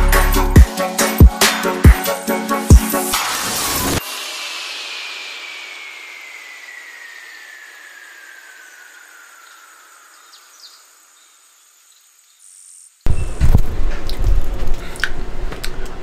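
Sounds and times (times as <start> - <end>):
electronic music: 0.0 - 9.3
hissing sweep: 1.4 - 11.2.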